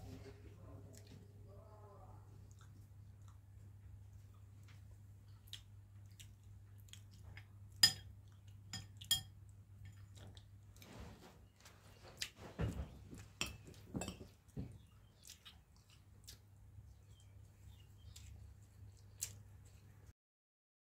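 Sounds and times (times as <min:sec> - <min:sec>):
low steady hum: 0:00.0 - 0:20.1
tableware clinking: 0:07.8 - 0:08.1, 0:08.7 - 0:09.3, 0:13.4 - 0:14.3.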